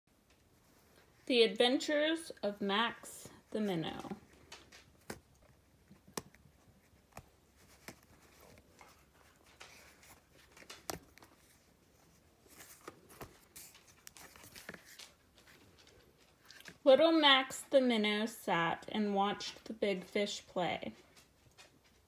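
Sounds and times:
stiff book cover rustling open: 4.1 - 16.8.

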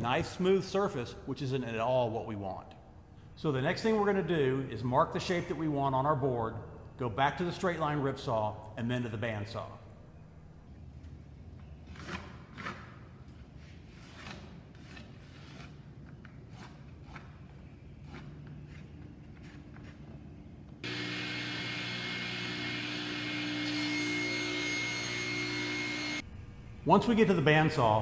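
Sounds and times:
band saw humming and whining: 20.8 - 26.8.

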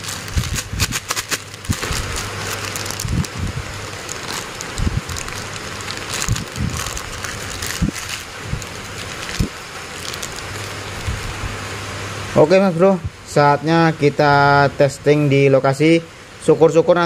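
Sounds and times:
plastic bag crinkling: 0.0 - 11.4.

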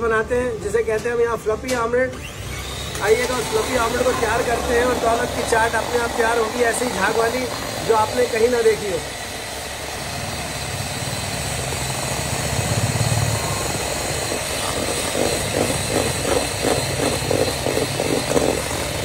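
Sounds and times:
electric hand mixer running: 2.2 - 19.0
rhythmic pulse: 11.0 - 19.0.

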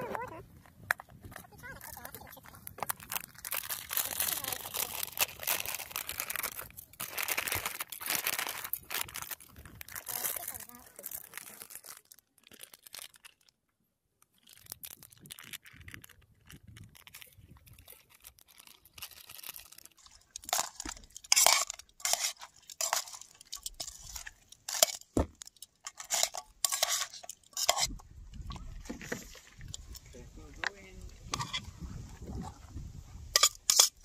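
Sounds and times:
plastic pouch crinkling: 1.0 - 13.6, 14.2 - 29.9
metal tongs clinking in a saucepan: 20.4 - 28.0, 33.4 - 34.0.

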